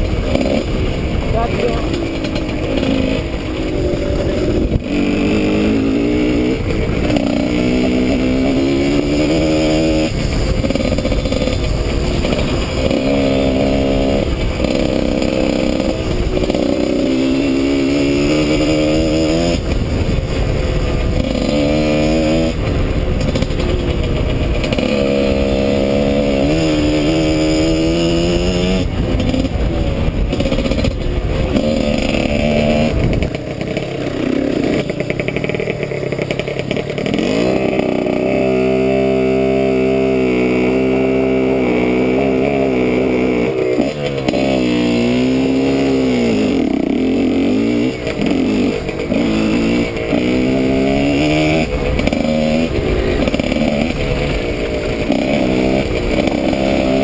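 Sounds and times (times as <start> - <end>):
wind on microphone: 0.0 - 34.6
dirt bike engine revving: 0.0 - 57.0.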